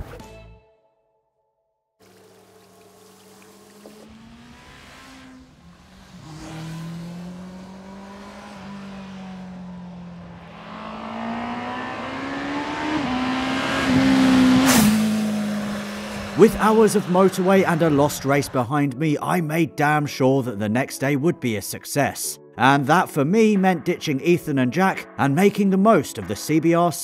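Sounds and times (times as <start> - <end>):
motorbike engine revving: 2.1 - 18.6.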